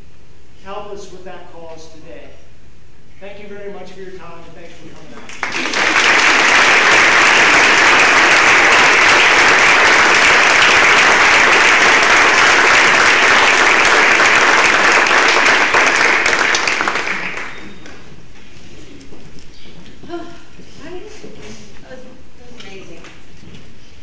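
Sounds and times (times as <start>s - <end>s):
people applauding: 5.1s - 18.1s.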